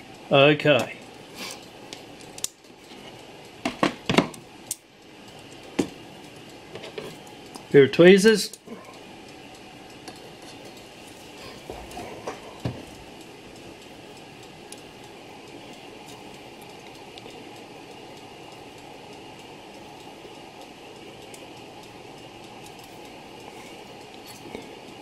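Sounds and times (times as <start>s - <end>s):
steady background hiss: 0.0s - 25.0s
clock movement clicks and knocks: 10.0s - 13.1s.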